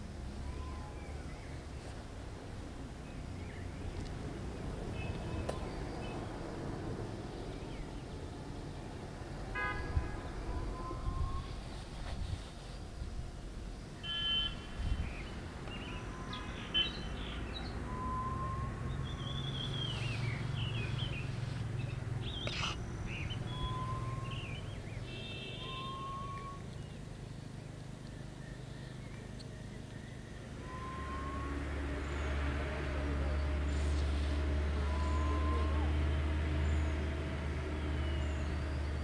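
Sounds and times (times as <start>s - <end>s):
bird chirps and trills: 15.0s - 27.1s.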